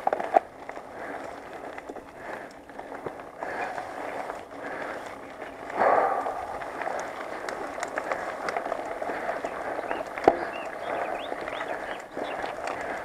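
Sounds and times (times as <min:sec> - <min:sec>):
bike tyres rumbling on dirt: 0:00.0 - 0:13.0.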